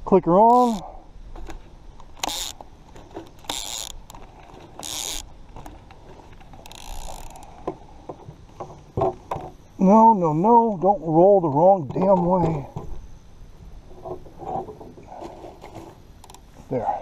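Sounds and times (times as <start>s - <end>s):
fishing reel whirring: 0.5s - 0.9s, 2.2s - 2.6s, 3.4s - 5.7s, 6.5s - 7.6s.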